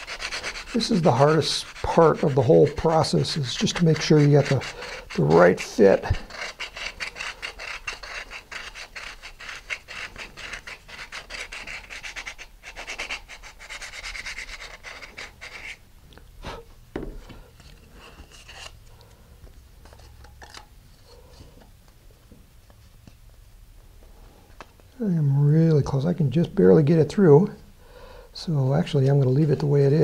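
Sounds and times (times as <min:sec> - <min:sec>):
sandpaper scraping plastic: 0:00.0 - 0:15.8.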